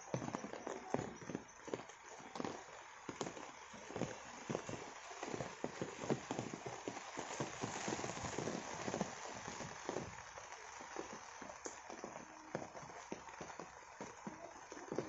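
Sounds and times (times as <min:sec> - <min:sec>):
rain hissing: 0:00.0 - 0:15.0
raindrops tapping on leaves: 0:00.0 - 0:15.0.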